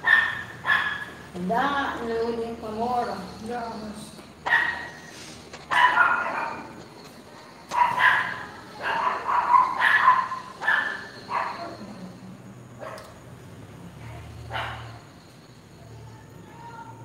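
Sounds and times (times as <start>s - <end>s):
dog yipping: 0.0s - 1.2s, 4.4s - 5.1s, 5.7s - 6.8s, 7.7s - 12.0s, 14.5s - 15.0s.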